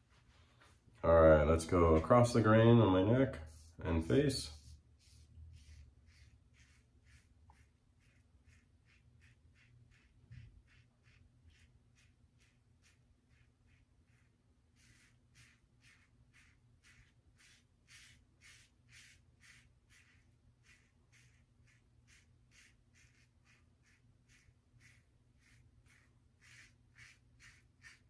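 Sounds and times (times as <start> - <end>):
razor scraping stubble: 3.8 - 28.0.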